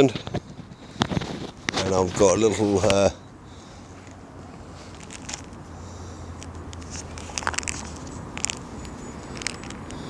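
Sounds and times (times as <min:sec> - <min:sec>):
crackles and clicks of tackle handling: 0:00.0 - 0:03.0, 0:04.8 - 0:05.6, 0:06.4 - 0:10.0.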